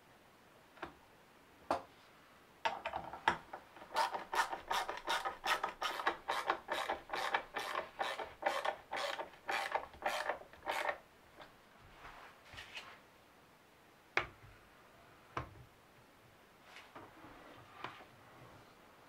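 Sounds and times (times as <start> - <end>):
screw grinding into wood: 3.8 - 11.0.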